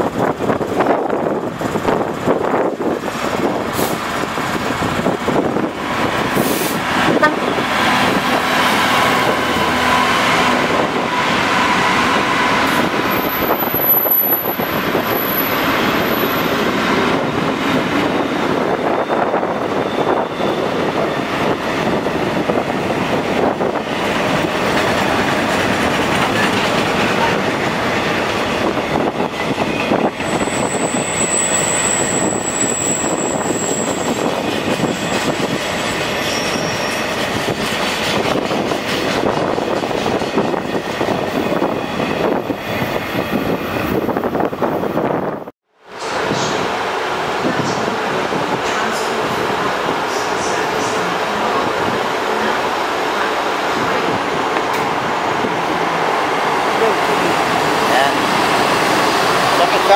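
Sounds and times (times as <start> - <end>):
train rumble and clatter: 0.0 - 59.9
high wheel squeal: 11.0 - 16.7, 18.8 - 21.5, 29.6 - 37.2.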